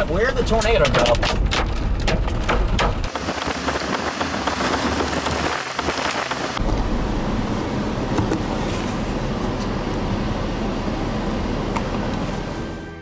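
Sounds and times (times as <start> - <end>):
car rumbling on road: 0.0 - 12.9
hailstones hitting a car: 0.6 - 6.6.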